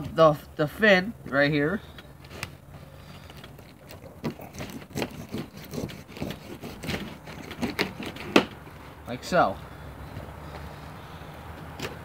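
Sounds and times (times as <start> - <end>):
knife cutting fish: 4.1 - 8.4.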